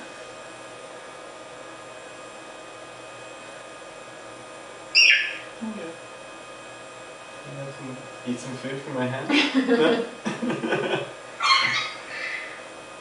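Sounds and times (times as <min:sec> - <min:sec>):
electronic fan hum: 0:00.0 - 0:13.0
synthesized bird squawk: 0:05.0 - 0:05.5, 0:11.4 - 0:12.6.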